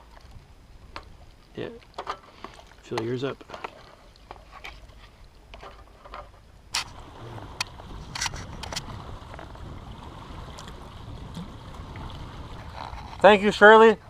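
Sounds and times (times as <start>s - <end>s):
low background rumble: 6.4s - 14.0s.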